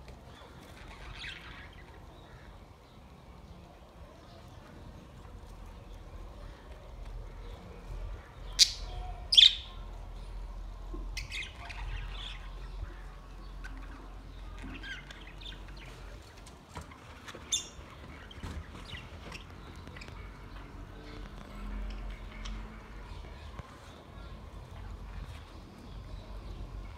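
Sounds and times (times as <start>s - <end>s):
budgerigars chirping and chattering: 8.4s - 9.8s, 11.1s - 23.5s.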